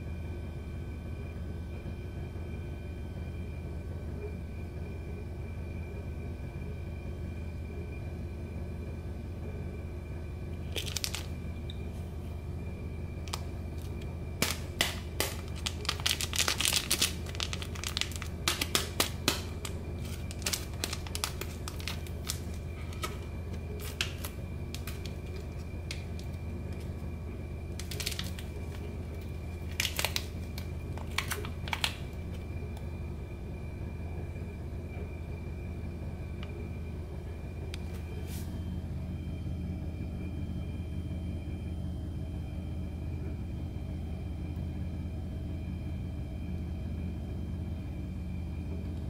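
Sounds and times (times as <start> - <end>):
foil sachet crinkling and tearing: 10.7 - 11.3, 13.3 - 27.0, 27.7 - 32.2.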